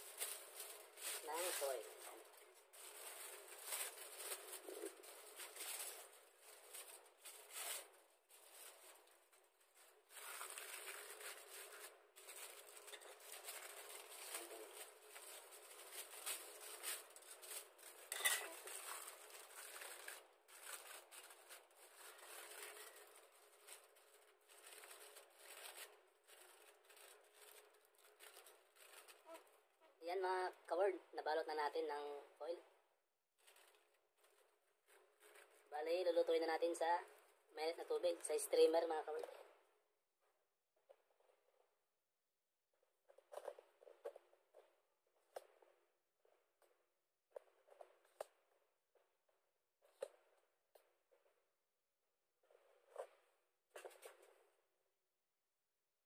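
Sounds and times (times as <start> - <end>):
aluminium foil crinkling: 0.0 - 29.6, 33.4 - 35.7.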